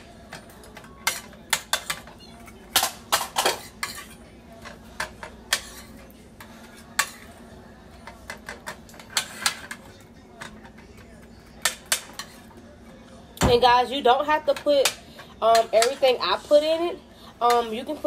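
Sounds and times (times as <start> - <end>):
metal spoon scraping a frying pan: 0.4 - 11.0, 11.6 - 12.6.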